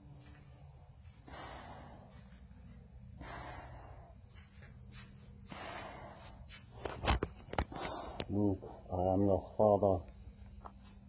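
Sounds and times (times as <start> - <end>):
breathing through a respirator: 0.7 - 6.8, 7.5 - 8.9.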